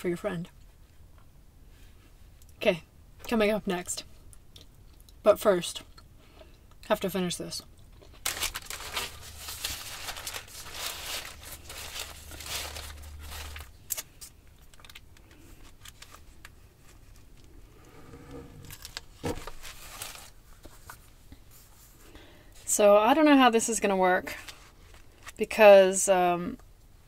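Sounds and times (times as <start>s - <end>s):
paper crinkling and rustling: 8.0s - 17.6s, 18.6s - 22.0s, 24.3s - 25.4s.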